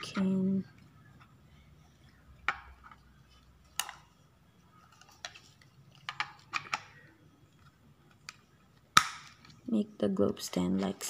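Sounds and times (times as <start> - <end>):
plastic pieces clicking and knocking: 6.0 - 6.9.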